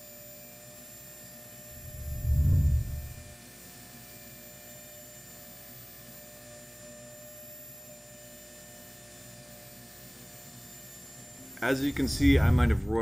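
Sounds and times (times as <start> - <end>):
faint steady hum: 1.6 - 3.4, 11.4 - 13.0.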